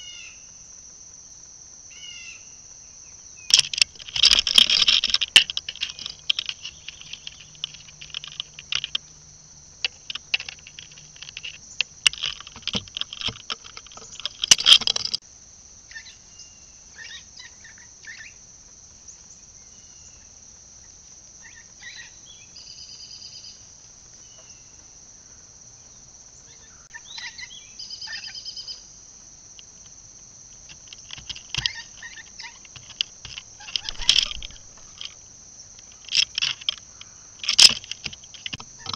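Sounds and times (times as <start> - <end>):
insect drone: 0.0 - 38.9
crackling and rustling clicks: 3.5 - 15.2, 29.6 - 38.9
bird chirps: 5.2 - 9.2, 21.4 - 24.9, 25.8 - 28.9, 31.2 - 35.0.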